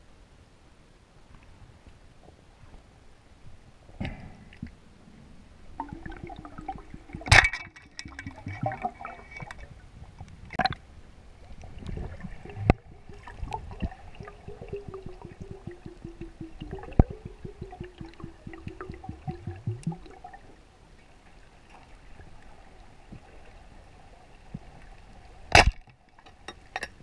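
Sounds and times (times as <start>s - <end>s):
sharp underwater knocks: 5.8s - 9.1s, 12.0s - 20.0s, 25.6s - 25.8s
underwater crackle of clicks: 5.8s - 9.6s, 10.2s - 10.8s, 11.5s - 20.2s, 25.5s - 26.9s
low hum: 11.4s - 20.5s.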